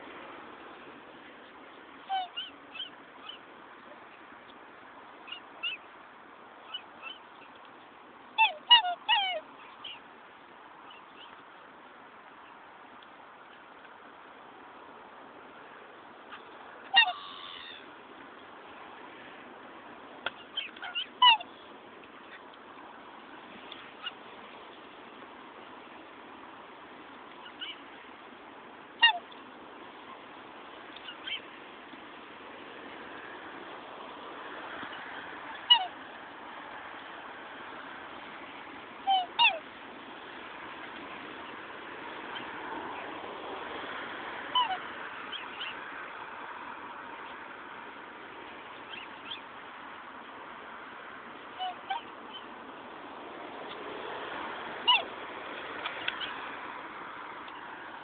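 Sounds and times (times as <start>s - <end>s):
steady background hiss: 0.0s - 58.0s
swans calling: 2.0s - 4.2s, 5.2s - 6.0s, 6.6s - 10.1s, 16.2s - 18.0s, 20.2s - 22.6s, 23.2s - 25.2s, 27.3s - 28.0s, 28.9s - 31.6s, 34.8s - 36.4s, 39.0s - 39.8s, 44.4s - 46.0s, 48.7s - 49.6s, 51.5s - 52.6s, 54.7s - 55.2s, 55.8s - 56.5s.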